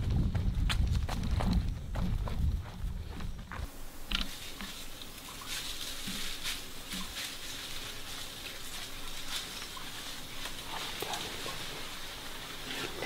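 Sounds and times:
faint rustles and clicks: 0:03.2 - 0:13.0.

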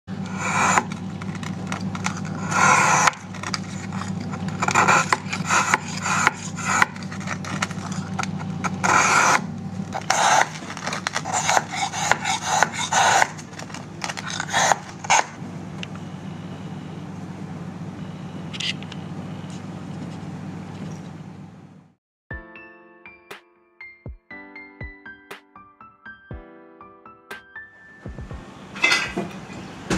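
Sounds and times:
steady low hum: 0:00.1 - 0:22.0
knife scraping ice: 0:00.2 - 0:15.4.

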